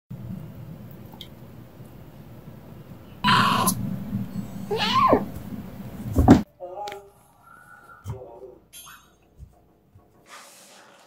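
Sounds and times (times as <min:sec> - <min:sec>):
low steady hum: 0:00.1 - 0:09.6
kitten crying: 0:03.2 - 0:03.8, 0:04.6 - 0:05.3.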